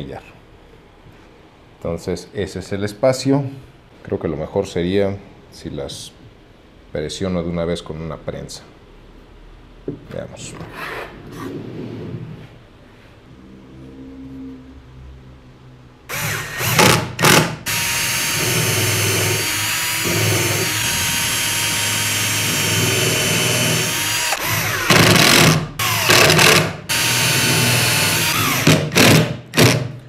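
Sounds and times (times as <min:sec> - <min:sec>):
cordless drill boring into wood: 0:16.1 - 0:29.8.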